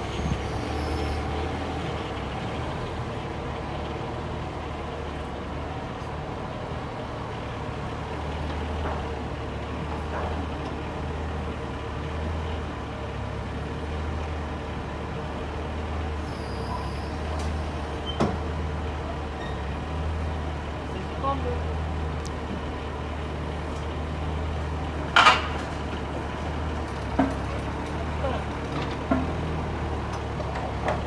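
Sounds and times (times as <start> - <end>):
mini excavator running: 0.0 - 31.0.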